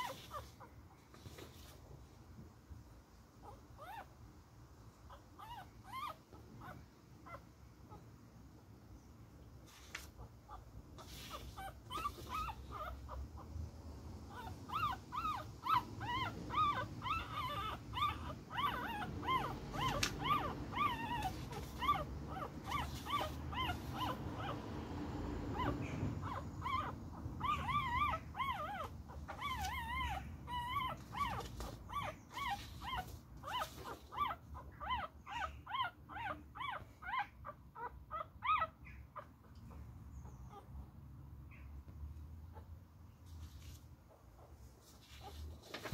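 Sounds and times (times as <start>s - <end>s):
puppy whimpering: 0.0s - 0.7s, 3.4s - 4.1s, 5.1s - 8.0s, 10.2s - 13.5s, 14.2s - 24.7s, 25.3s - 40.8s.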